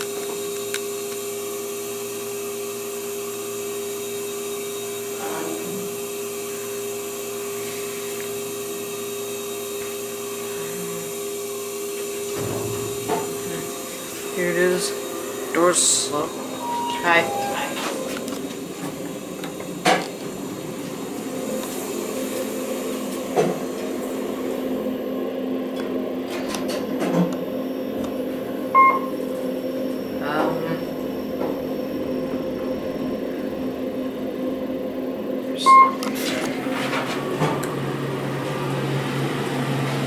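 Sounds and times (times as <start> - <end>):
elevator humming: 10.0 - 39.9
short electronic beeps: 16.4 - 18.2, 28.8 - 29.1, 35.6 - 36.0.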